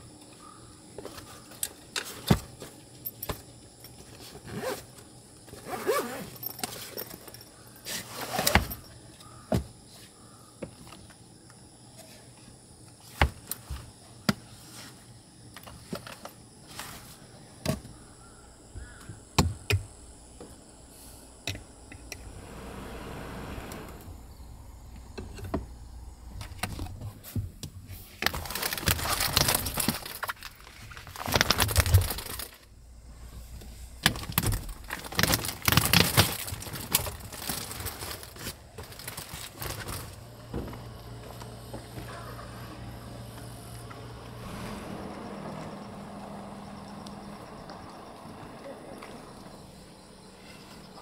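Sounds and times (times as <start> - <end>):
steady low hum: 16.4 - 28.2, 32.1 - 35.2, 37.8 - 51.0
rustling and clattering: 33.5 - 42.1.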